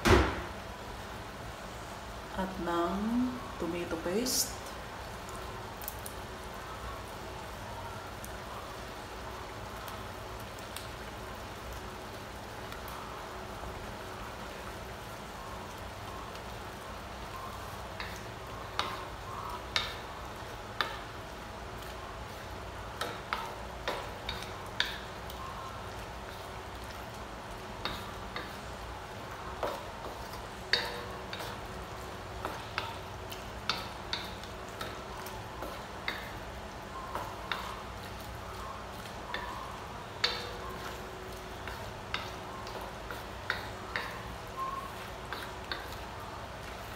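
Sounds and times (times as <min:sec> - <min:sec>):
food sizzling in a wok: 0:00.0 - 0:46.9
wooden spatula scraping wok: 0:37.0 - 0:46.9.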